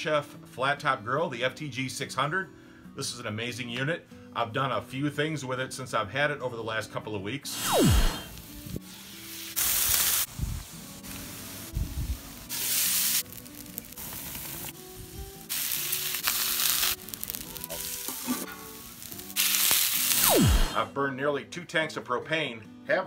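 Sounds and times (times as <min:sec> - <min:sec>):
food sizzling on griddle: 0:08.3 - 0:20.3
background music with bass: 0:20.2 - 0:21.1.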